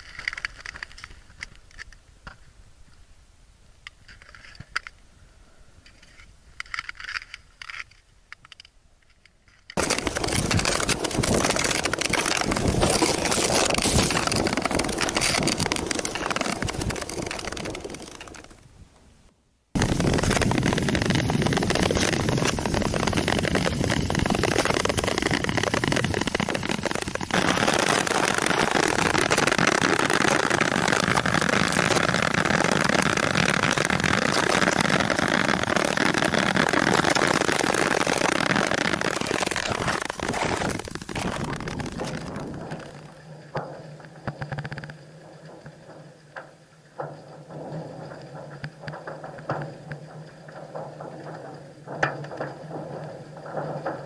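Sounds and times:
rushing noise of travel on ice: 0:09.8 - 0:18.6, 0:19.8 - 0:54.0.

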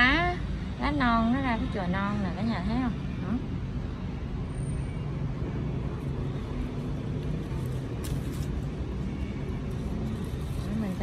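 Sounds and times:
leaves rustling: 0:06.0 - 0:11.0.

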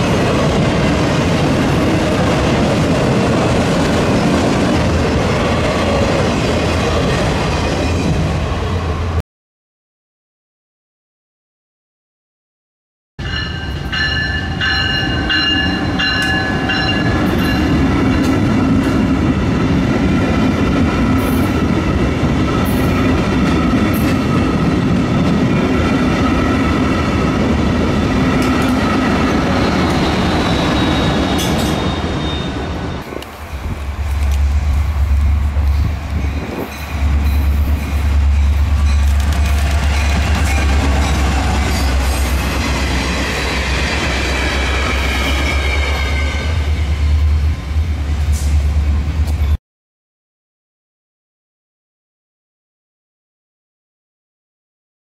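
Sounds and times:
passenger train rumbling past: 0:00.0 - 0:09.2, 0:13.2 - 0:49.6
crossing signal bells ringing: 0:13.2 - 0:17.9.

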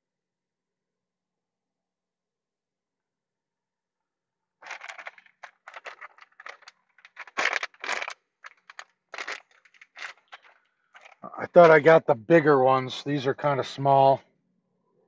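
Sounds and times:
plastic bag crinkling: 0:04.6 - 0:11.3.

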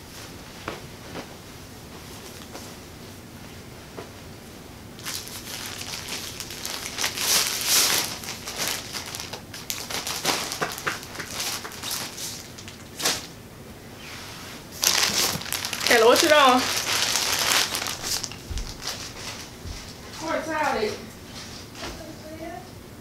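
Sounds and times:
plastic bags and clothing rustling: 0:05.0 - 0:13.4, 0:14.2 - 0:22.5.

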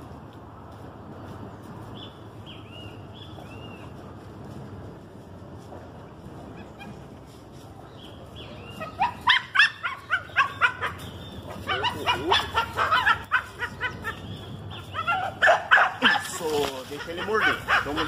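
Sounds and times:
dog yelping and whining: 0:08.8 - 0:16.3.

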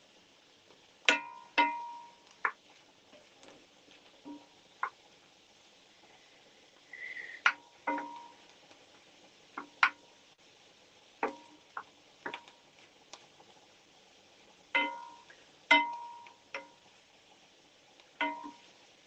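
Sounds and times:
wooden spoon knocking on pan: 0:01.1 - 0:02.6, 0:07.5 - 0:08.4, 0:09.6 - 0:10.1, 0:11.2 - 0:12.5, 0:14.8 - 0:16.8, 0:18.2 - 0:18.7.

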